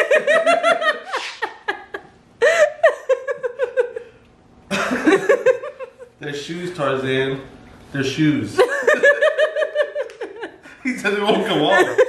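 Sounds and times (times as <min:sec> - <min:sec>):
woman laughing hard: 0:00.0 - 0:06.2, 0:08.6 - 0:10.6.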